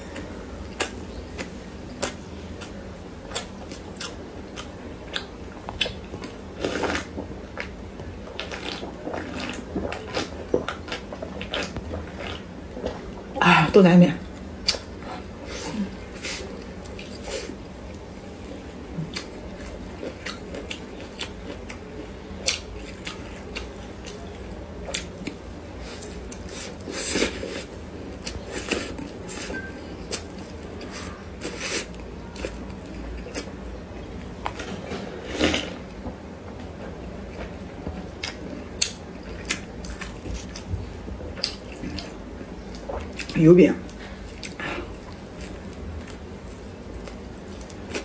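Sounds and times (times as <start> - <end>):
chewing with wet mouth clicks: 0.2 - 7.7, 19.0 - 21.8, 22.4 - 25.4, 37.3 - 40.7, 41.3 - 43.4.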